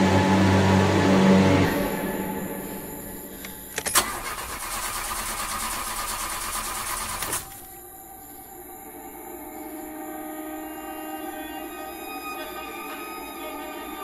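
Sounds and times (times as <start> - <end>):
faint steady drone: 0.0 - 14.0
car engine starting: 0.8 - 7.7
starter clicks: 3.4 - 7.7.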